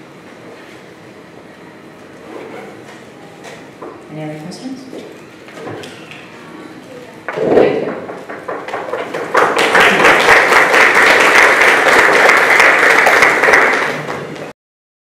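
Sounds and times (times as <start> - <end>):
audience applauding: 8.1 - 14.5.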